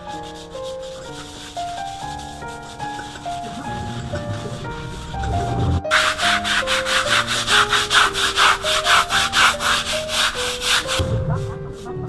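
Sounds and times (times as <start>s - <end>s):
brush scrubbing wet concrete: 0.0s - 12.0s
soft background music: 0.0s - 12.0s.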